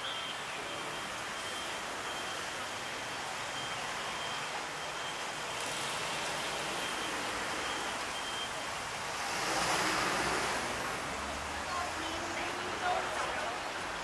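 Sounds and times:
thin high-pitched beep: 0.0s - 8.6s
passing traffic hum: 0.0s - 14.0s.

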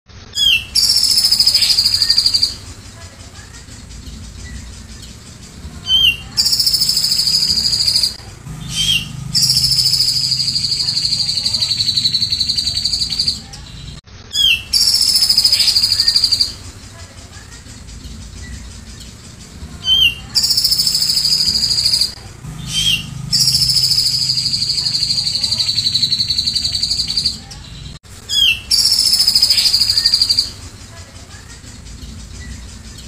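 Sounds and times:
bird singing rattling trills: 0.3s - 33.0s.

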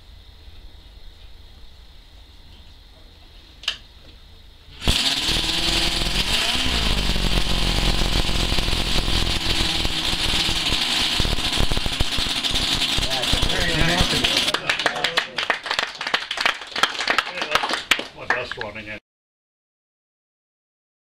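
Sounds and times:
model engine running fast: 4.8s - 14.5s.

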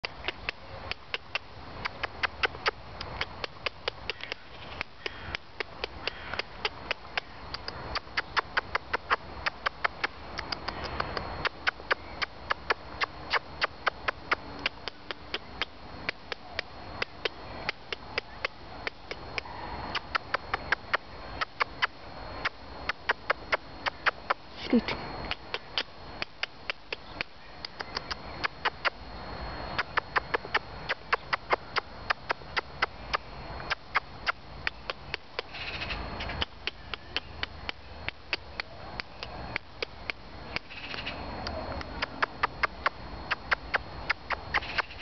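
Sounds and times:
fast sharp clicks: 0.0s - 24.4s
faint high whine: 0.0s - 45.0s.

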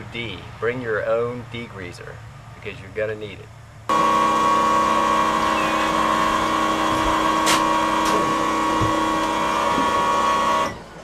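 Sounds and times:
electric pump whining: 3.9s - 11.0s.

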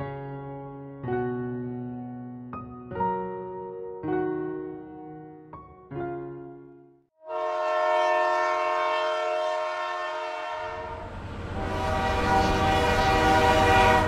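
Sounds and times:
locomotive horn blast: 7.2s - 14.0s.

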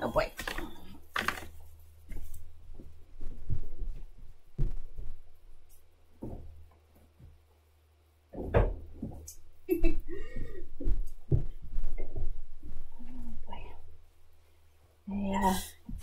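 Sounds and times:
low steady hum: 0.0s - 16.0s
muffled thumps and knocks: 1.2s - 7.4s, 8.3s - 12.9s.

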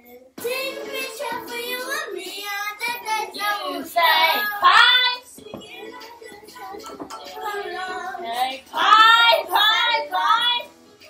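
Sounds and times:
children singing together: 0.0s - 10.7s.

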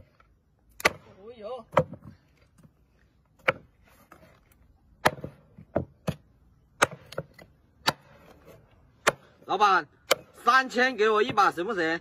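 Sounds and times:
cleaver chopping on wood: 0.8s - 2.1s, 3.4s - 3.7s, 5.0s - 8.4s, 9.0s - 9.4s, 10.0s - 10.4s.

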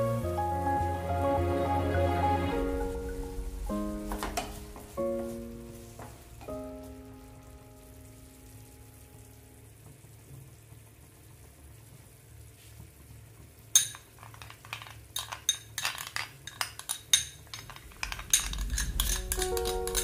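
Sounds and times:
spoon clinking against glass bowl: 13.8s - 14.1s, 15.2s - 20.0s.

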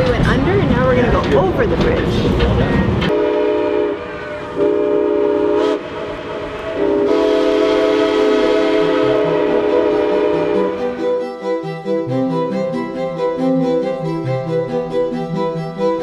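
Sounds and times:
steam locomotive chime whistle: 3.1s - 12.9s.

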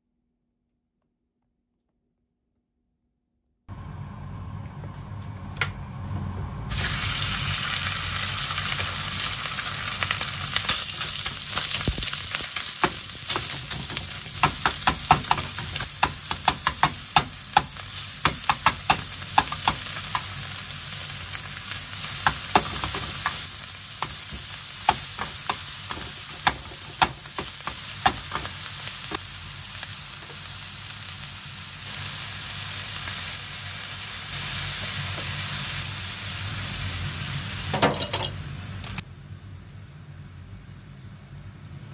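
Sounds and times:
meat sizzling in hot oil: 6.7s - 37.9s.

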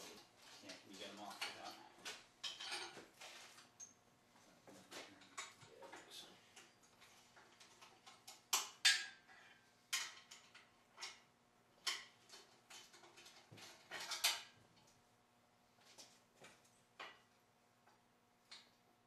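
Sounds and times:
metal clinks and knocks: 0.5s - 4.0s, 6.6s - 14.6s.

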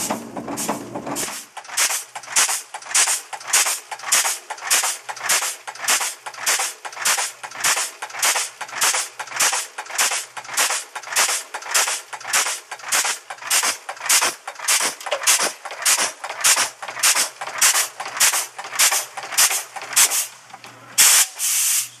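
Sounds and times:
machine ram striking metal: 0.0s - 20.1s
burst of machine noise: 0.0s - 20.4s.

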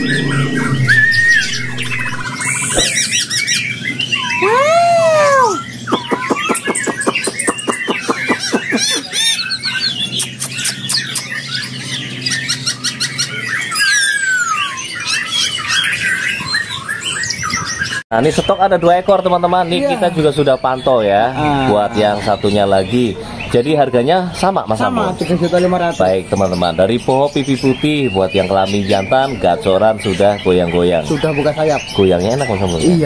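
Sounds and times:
steady low hum: 0.0s - 4.1s
songbirds singing and calling: 0.0s - 33.0s
fast rattling bird trill: 5.4s - 17.3s.

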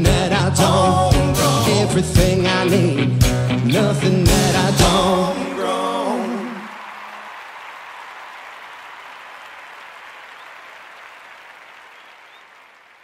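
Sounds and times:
country-rock band held note: 0.0s - 6.5s
audience applauding: 5.0s - 13.0s.

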